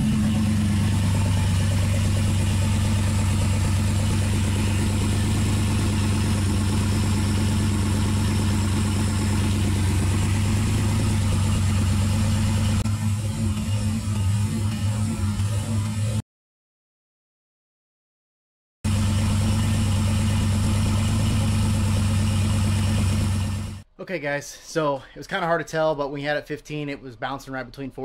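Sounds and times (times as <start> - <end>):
car engine idling: 0.0 - 16.2, 18.9 - 23.8.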